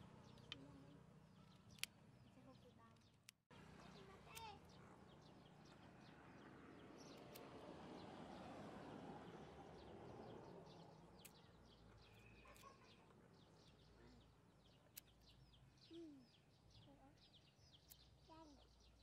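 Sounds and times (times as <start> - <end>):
small birds chirping: 0.0 - 19.0
sharp clicks: 11.1 - 12.8.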